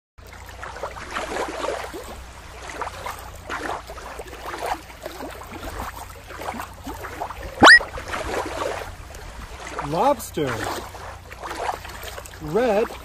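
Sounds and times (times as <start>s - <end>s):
shallow water splashing: 10.5s - 13.0s.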